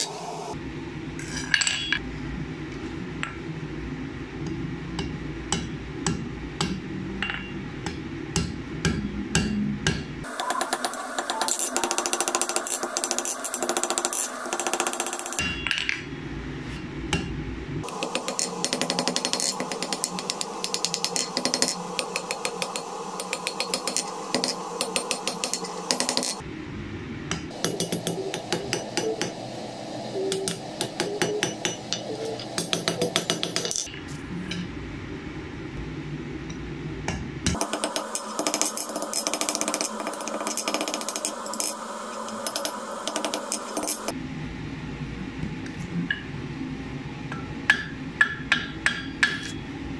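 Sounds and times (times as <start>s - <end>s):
hammer striking steel on anvil: 5.0s - 16.0s, 17.9s - 26.4s, 27.3s - 29.4s, 30.3s - 33.9s, 47.3s - 49.7s.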